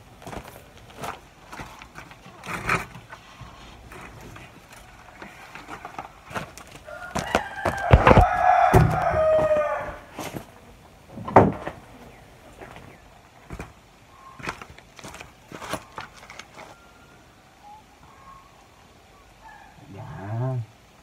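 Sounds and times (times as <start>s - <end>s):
footsteps on loose gravel: 0.0s - 10.5s, 12.6s - 16.9s
rooster crowing: 6.8s - 10.3s, 16.5s - 18.5s, 19.4s - 20.6s.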